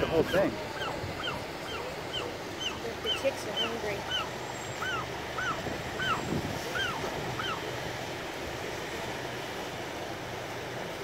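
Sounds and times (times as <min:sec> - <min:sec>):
gull chicks peeping: 0:00.0 - 0:07.8
surf: 0:00.0 - 0:11.0
wind: 0:00.0 - 0:11.0.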